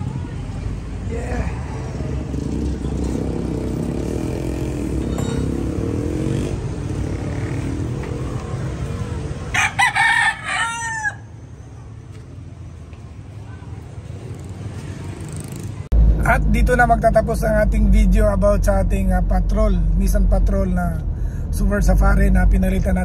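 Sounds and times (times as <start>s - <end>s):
low vehicle noise: 0.0s - 23.0s
rooster crowing: 9.4s - 11.5s.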